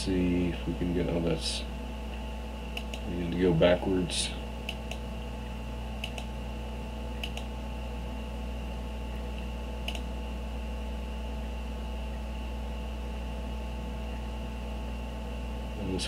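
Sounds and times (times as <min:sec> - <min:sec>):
electrical hum and hiss: 0:00.0 - 0:16.0
faint high whine: 0:00.0 - 0:16.0
computer mouse clicking: 0:02.7 - 0:03.0, 0:04.7 - 0:05.0, 0:06.0 - 0:06.3, 0:07.2 - 0:07.5, 0:09.8 - 0:10.1.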